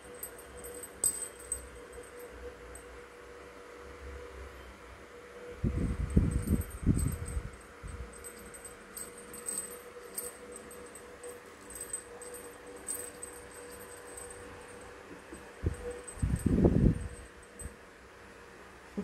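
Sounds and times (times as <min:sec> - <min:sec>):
small bell tinkling: 0:00.0 - 0:02.9, 0:06.0 - 0:17.8
faint steady hum: 0:00.0 - 0:19.0.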